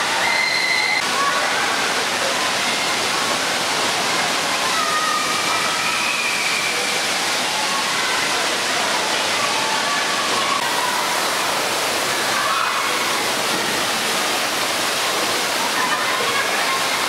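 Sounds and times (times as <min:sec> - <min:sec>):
faint voices of bathers: 0:00.0 - 0:17.0
water falling and splashing: 0:00.0 - 0:17.0.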